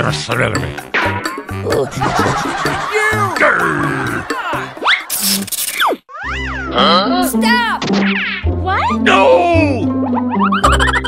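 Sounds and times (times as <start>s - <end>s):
background music with bass line: 0.0s - 5.5s.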